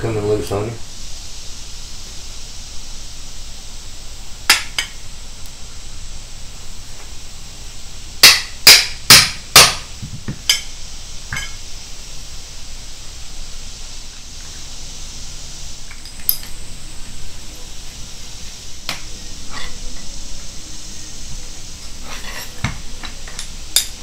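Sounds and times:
hammer striking steel: 0:08.2 - 0:09.8
metal clink: 0:11.3 - 0:11.6.

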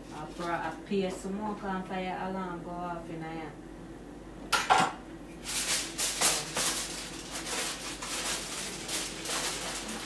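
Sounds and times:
aluminium foil crinkling: 0:00.1 - 0:00.8, 0:05.4 - 0:10.0.

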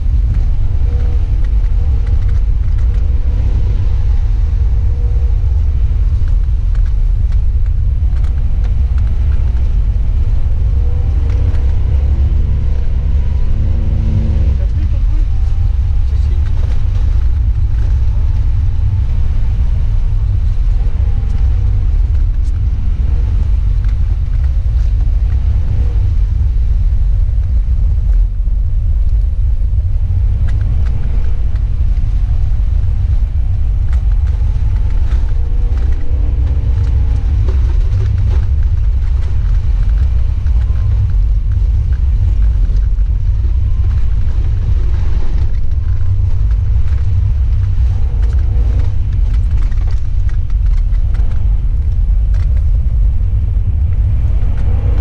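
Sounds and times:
car engine rumble: 0:00.0 - 0:55.0
road noise inside car: 0:00.0 - 0:55.0.

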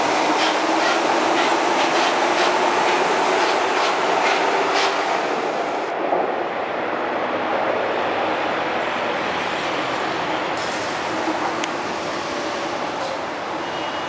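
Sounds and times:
train rolling rumble: 0:00.0 - 0:14.0
train hiss: 0:10.6 - 0:14.0.

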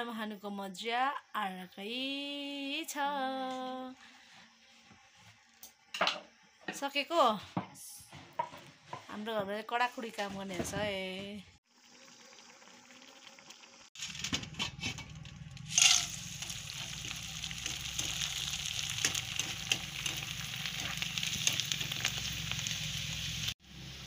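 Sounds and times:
oil sizzling in a wok: 0:11.6 - 0:24.0.

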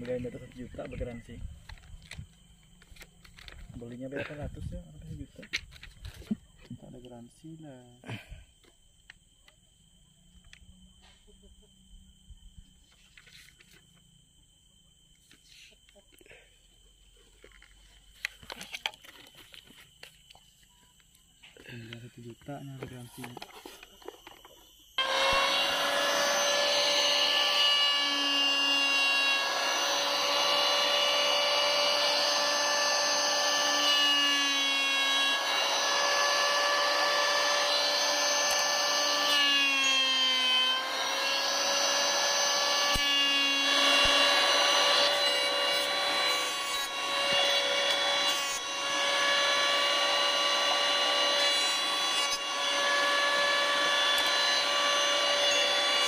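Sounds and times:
blade shaving wood hiss: 0:21.4 - 0:56.0
electric hand planer whining: 0:22.8 - 0:56.0.

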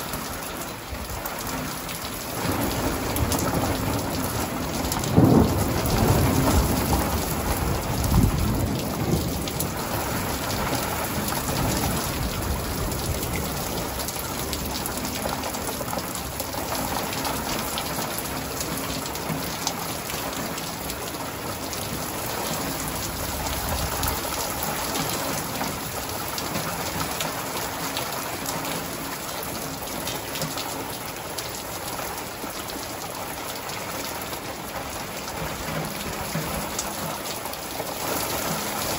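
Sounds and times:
steady rain falling: 0:00.0 - 0:38.9
thunder rumbling: 0:01.0 - 0:27.1.

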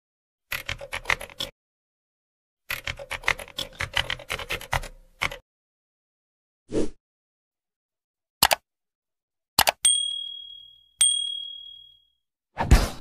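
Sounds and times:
rapid typing clicks: 0:00.5 - 0:01.5, 0:02.7 - 0:05.4, 0:08.4 - 0:08.6.

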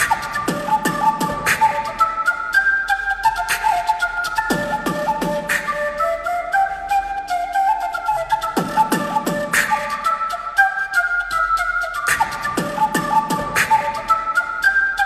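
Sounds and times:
fast ticking beat: 0:00.0 - 0:02.0
flute-like electronic melody: 0:00.0 - 0:15.0.

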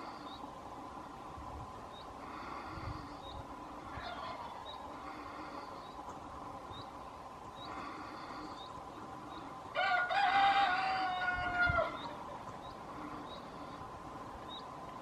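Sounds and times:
rooster crowing: 0:03.9 - 0:04.7, 0:09.7 - 0:12.2.

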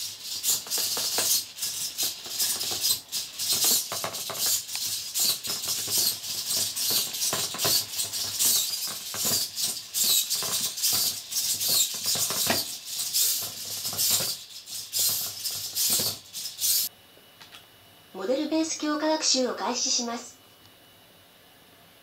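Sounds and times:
robot scraping on wooden floor: 0:00.0 - 0:16.9
servo motors buzzing: 0:00.0 - 0:16.9.

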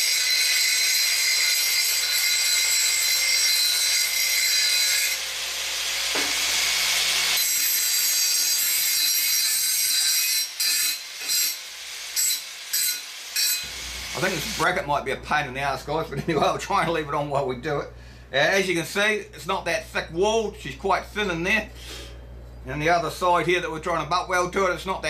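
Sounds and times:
angle grinder grinding metal: 0:00.0 - 0:14.9.

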